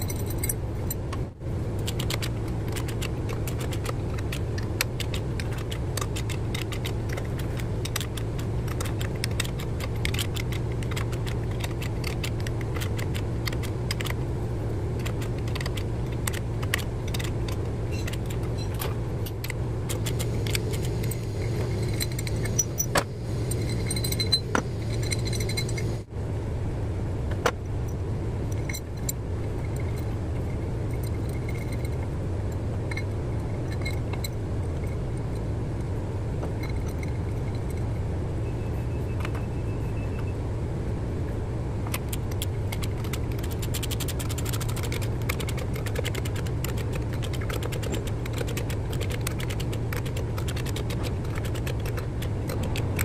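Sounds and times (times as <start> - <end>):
metal knocks and clinks: 0.0 - 1.1
steady low hum: 0.0 - 53.0.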